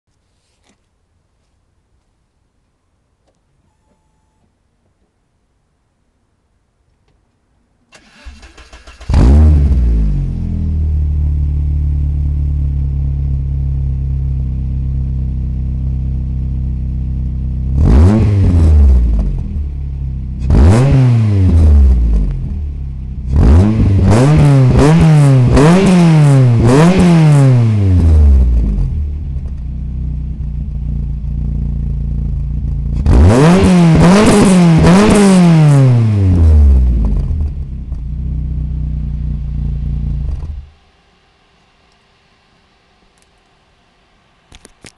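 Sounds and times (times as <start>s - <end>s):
car engine idling and revving: 8.0s - 40.9s.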